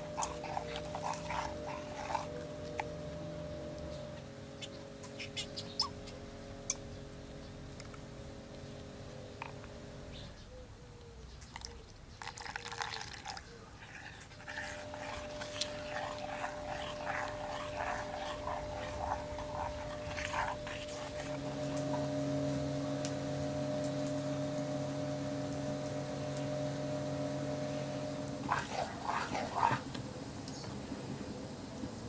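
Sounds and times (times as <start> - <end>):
spoon stirring thick sauce: 0.0 - 2.9, 12.3 - 22.4, 28.3 - 29.8
low hum: 0.0 - 10.5, 13.8 - 30.4
liquid pouring: 12.2 - 13.4.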